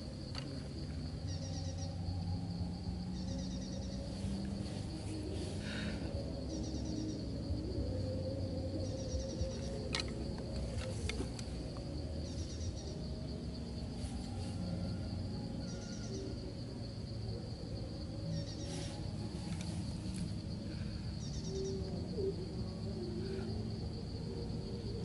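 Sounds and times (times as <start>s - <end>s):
light clicks of bamboo sticks: 0.0s - 1.8s, 9.2s - 12.8s, 18.5s - 20.7s
insects droning: 0.0s - 25.0s
low rumbling noise: 0.0s - 25.0s.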